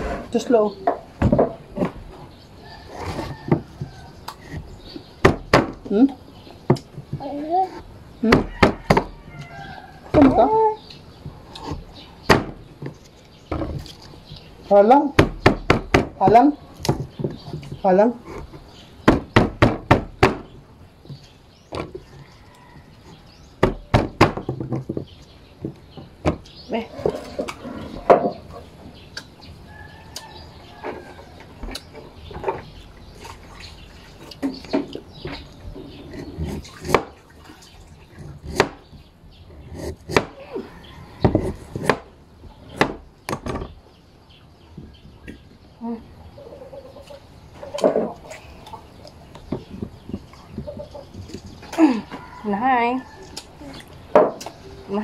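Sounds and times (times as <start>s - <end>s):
sharp knocks: 19.0s - 20.5s.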